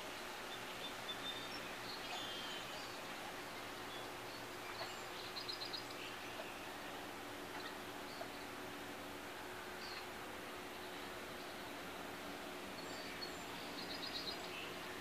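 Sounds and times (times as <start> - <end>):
small birds chirping: 12.7 - 15.0.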